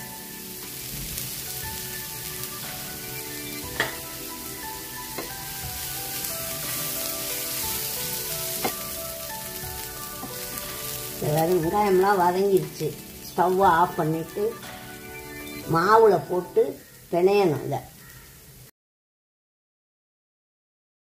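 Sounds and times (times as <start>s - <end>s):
food sizzling in oil: 0.0s - 18.7s
spatula stirring: 1.2s - 13.5s
spatula knocking on pan: 3.7s - 4.1s, 5.1s - 6.2s, 8.5s - 9.0s.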